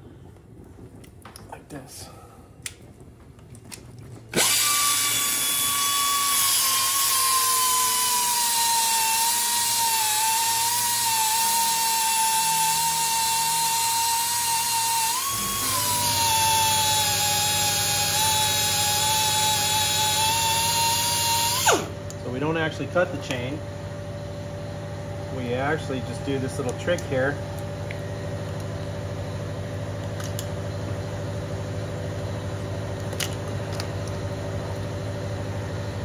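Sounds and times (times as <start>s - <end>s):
rotary grinder cutting steel: 4.4s - 21.9s.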